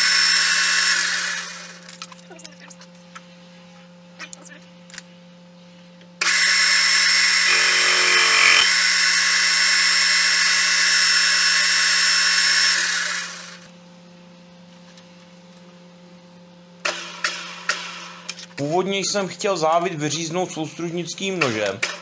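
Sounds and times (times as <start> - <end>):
lathe spindle running down: 0.0 - 1.8, 6.2 - 13.7
metal lathe whine: 0.0 - 1.8, 6.2 - 13.7.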